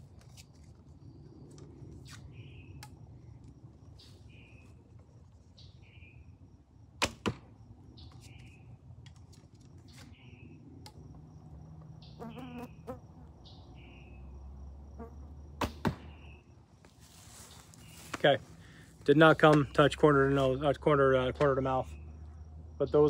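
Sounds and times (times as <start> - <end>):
arrow striking target: 7.0 - 7.5, 15.6 - 16.2
birds chirping: 11.8 - 14.4
insect trilling: 11.9 - 15.4.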